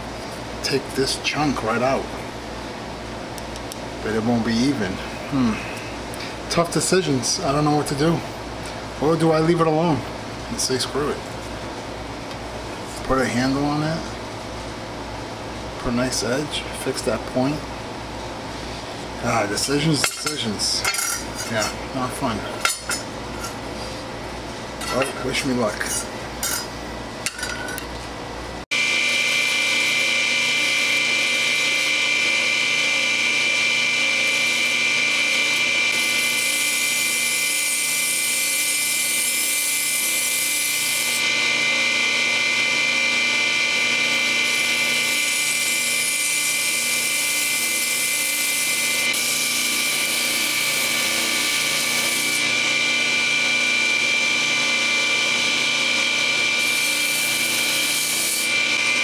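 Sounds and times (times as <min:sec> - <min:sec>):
belt grinder whine: 0:28.7 - 0:59.0.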